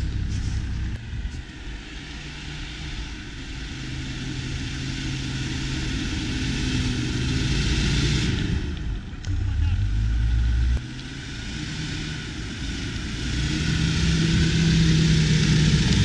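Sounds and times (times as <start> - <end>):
tyres churning snow hiss: 0.0 - 8.6
car engine pulling steadily: 0.0 - 16.0.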